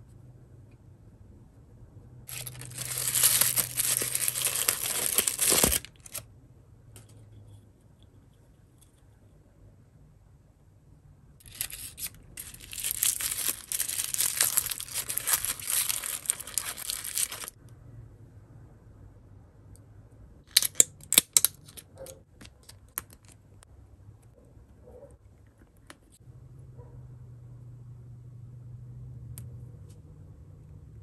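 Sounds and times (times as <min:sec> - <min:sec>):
plastic pouch crinkling: 0:02.3 - 0:06.2, 0:11.4 - 0:17.6.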